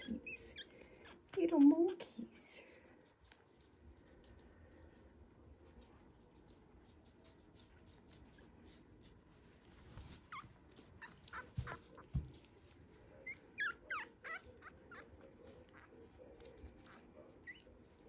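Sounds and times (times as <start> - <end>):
puppies squeaking and whimpering: 0.0 - 1.6, 10.2 - 12.1, 13.2 - 15.9, 16.8 - 17.7.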